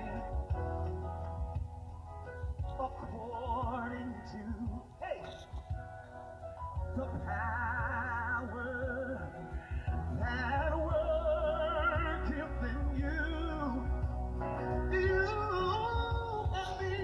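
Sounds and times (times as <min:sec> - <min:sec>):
person singing with vibrato: 0:00.0 - 0:00.8, 0:02.6 - 0:05.7, 0:06.8 - 0:17.0
steady low bass: 0:00.0 - 0:04.9, 0:06.6 - 0:17.0.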